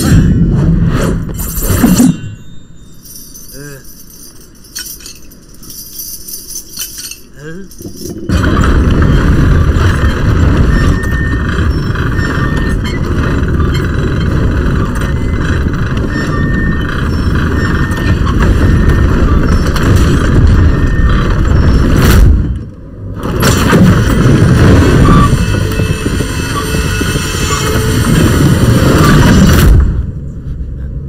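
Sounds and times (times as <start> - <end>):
low rumbling sound effects: 7.8 - 31.0.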